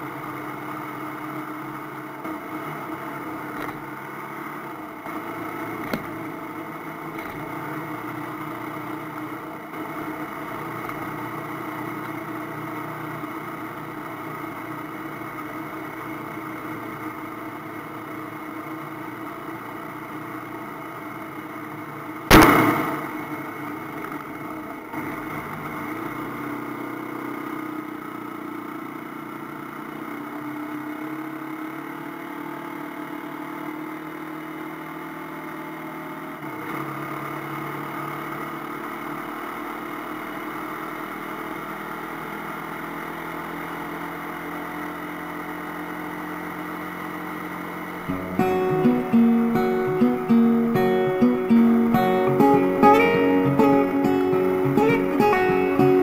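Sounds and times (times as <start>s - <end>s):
motorcycle engine running: 0.0s - 56.0s
loud thump: 22.3s - 23.4s.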